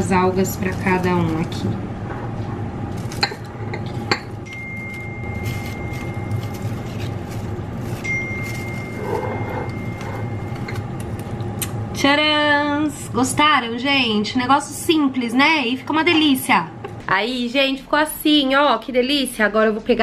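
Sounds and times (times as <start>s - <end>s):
kitchen hum: 0.0s - 20.0s
nori sheets being handled: 4.8s - 10.6s.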